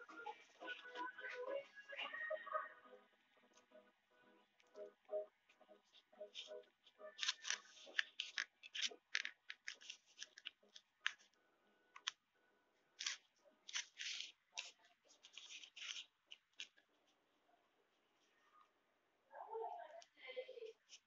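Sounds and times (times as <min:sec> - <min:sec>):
paper rustling and crinkling: 0:07.1 - 0:11.3, 0:13.0 - 0:16.8.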